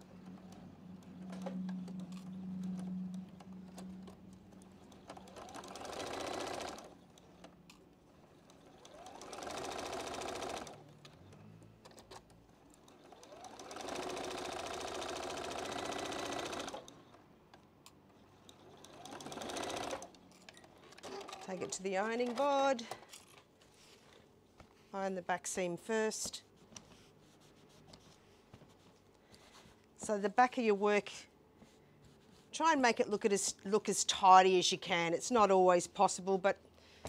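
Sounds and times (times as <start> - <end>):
sewing machine stitching: 0.1 - 17.2, 18.2 - 23.0.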